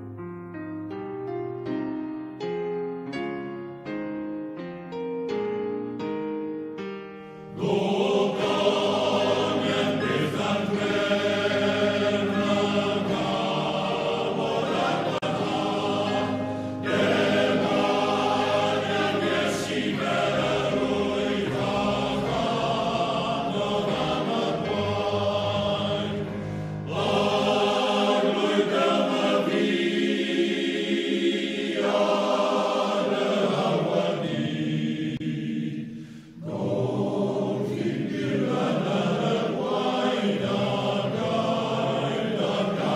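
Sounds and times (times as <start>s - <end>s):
male choir singing: 7.5s - 42.9s
singers breathing: 16.3s - 17.1s, 26.2s - 26.9s, 35.8s - 36.5s.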